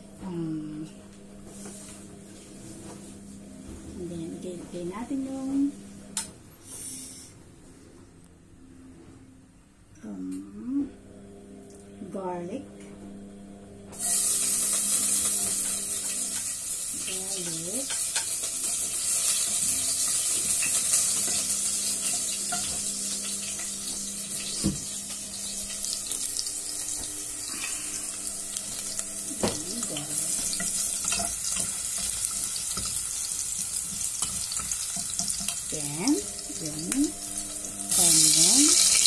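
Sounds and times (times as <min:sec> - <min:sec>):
garlic sizzling in hot oil: 0:14.0 - 0:39.0.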